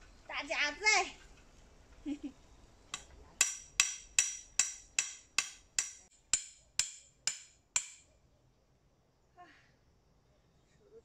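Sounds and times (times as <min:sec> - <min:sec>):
hammer striking metal stake: 0:02.9 - 0:08.1.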